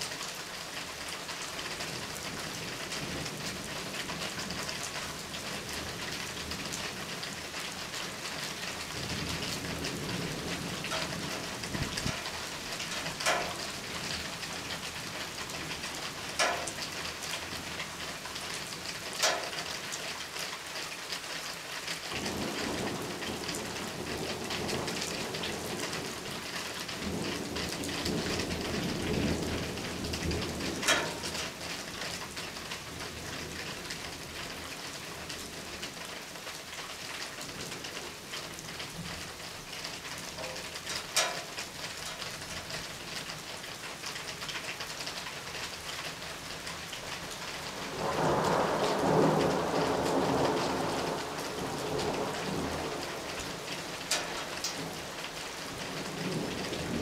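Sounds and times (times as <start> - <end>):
steady rain falling: 0.0 - 57.0
sharp water drips: 6.2 - 57.0
low thunder rumbling: 8.5 - 17.8, 22.1 - 32.0, 46.8 - 57.0.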